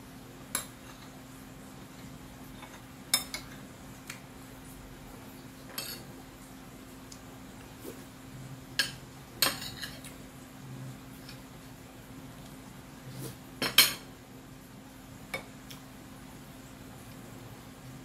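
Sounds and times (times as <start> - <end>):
cutlery clinking on a plate: 8.8 - 10.1.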